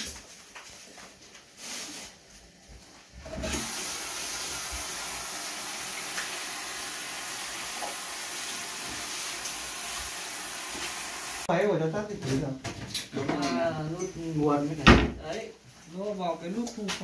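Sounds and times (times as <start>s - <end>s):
water running: 3.2s - 11.5s.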